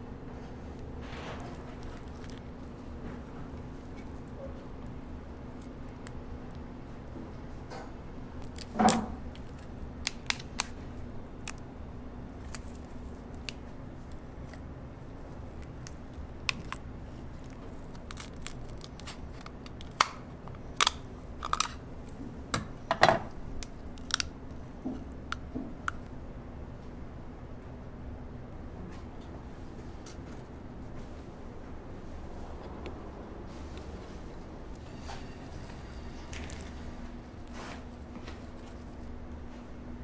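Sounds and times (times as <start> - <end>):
low steady hum: 0.0 - 40.0
lobster shell cracking: 8.4 - 10.8, 11.4 - 11.7, 15.4 - 21.8, 23.5 - 24.6.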